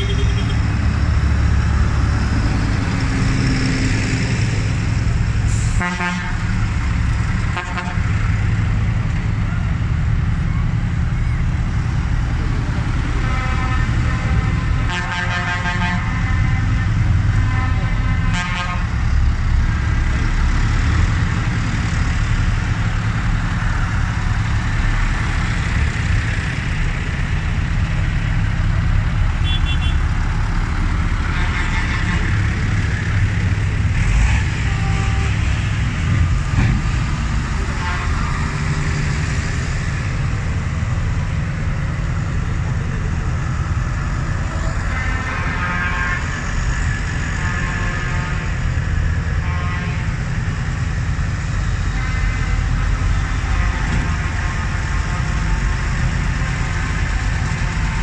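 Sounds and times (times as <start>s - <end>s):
tractor horns tooting: 0.0s - 0.7s, 13.2s - 16.8s, 17.4s - 19.0s, 29.4s - 30.1s, 31.2s - 32.6s, 34.1s - 35.6s, 44.8s - 46.4s
tractor engines running: 0.0s - 58.0s.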